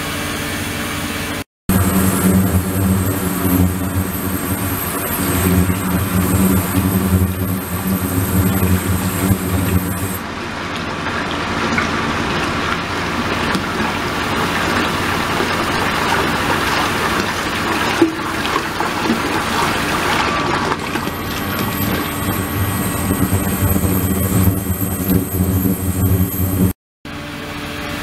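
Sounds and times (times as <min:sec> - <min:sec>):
steady high tone: 0:01.7 - 0:10.2, 0:20.8 - 0:26.8
low hum: 0:01.7 - 0:10.3, 0:20.8 - 0:26.8
water pouring into a tank: 0:01.7 - 0:26.3.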